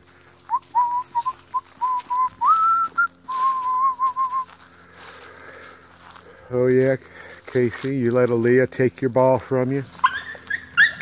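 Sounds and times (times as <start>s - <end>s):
person whistling: 0.5s - 4.5s.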